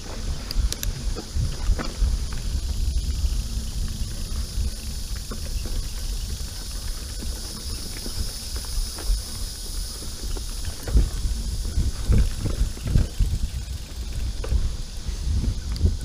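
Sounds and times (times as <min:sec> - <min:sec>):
bike rattling over bumps: 0:00.0 - 0:16.0
bike tyre noise on dirt: 0:00.0 - 0:16.0
wind rumble on microphone: 0:00.0 - 0:16.0.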